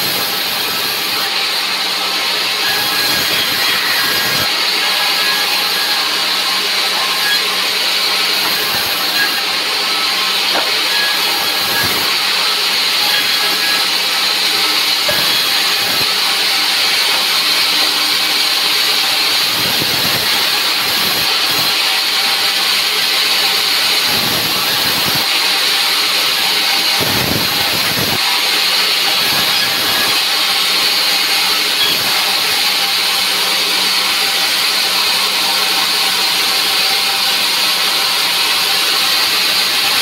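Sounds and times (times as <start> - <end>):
saw motor hum: 0.0 - 40.0
wood pieces knocking: 10.5 - 12.2.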